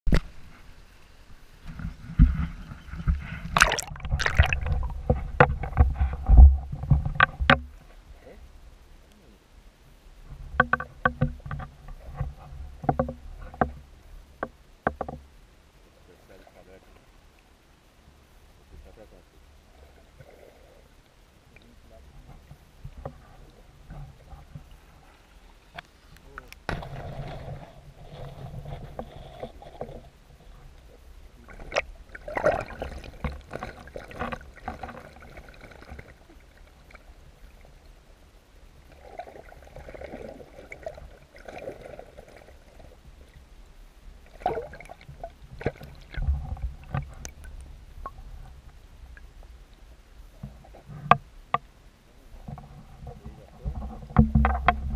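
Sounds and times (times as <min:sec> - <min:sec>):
muffled underwater rumble: 0:00.1 - 0:54.9
water splashing and gurgling: 0:01.6 - 0:07.9, 0:26.3 - 0:43.5, 0:44.1 - 0:49.4
sharp knocks: 0:54.2 - 0:54.9.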